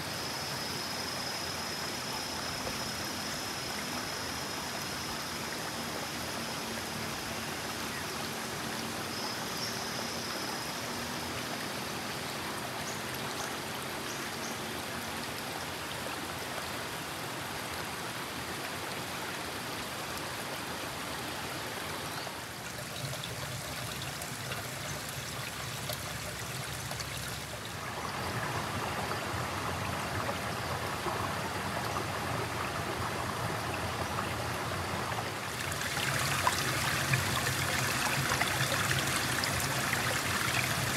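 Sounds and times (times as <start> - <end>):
river running over rocks: 10.9 - 40.9.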